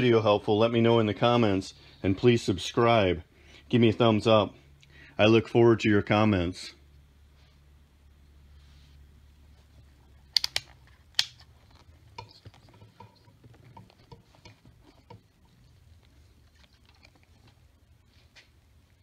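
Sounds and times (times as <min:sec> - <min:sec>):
faint low hum: 0:00.0 - 0:19.0
multimeter switch clicks: 0:10.4 - 0:11.4.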